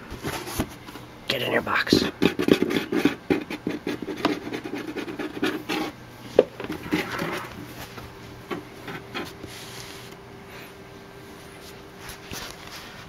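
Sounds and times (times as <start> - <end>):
cardboard box scraping: 6.8 - 7.5.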